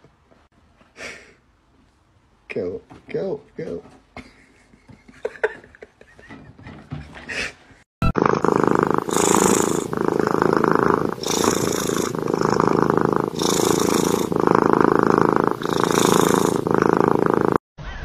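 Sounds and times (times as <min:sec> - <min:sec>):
cat purring loudly: 0:08.0 - 0:17.6.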